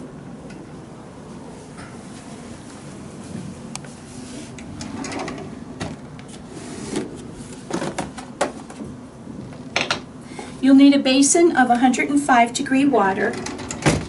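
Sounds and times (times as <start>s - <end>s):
drawer sliding open: 4.4s - 8.3s.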